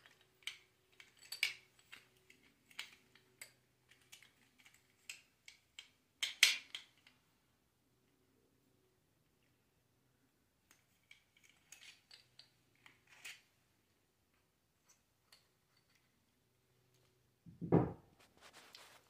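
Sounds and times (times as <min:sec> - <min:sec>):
loud knock: 0:17.5 - 0:18.0.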